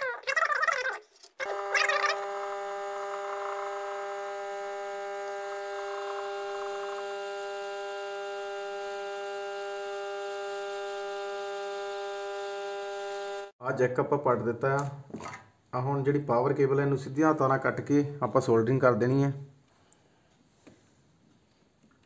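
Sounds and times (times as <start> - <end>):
hot air gun humming: 1.4 - 13.6.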